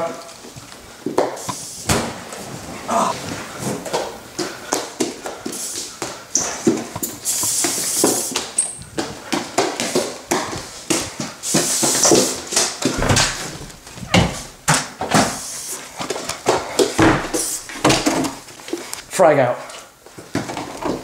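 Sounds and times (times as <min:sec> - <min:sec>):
spray can hissing: 0:07.2 - 0:08.4, 0:17.3 - 0:17.8
footsteps: 0:10.4 - 0:19.0
knocks and thumps: 0:12.9 - 0:15.3.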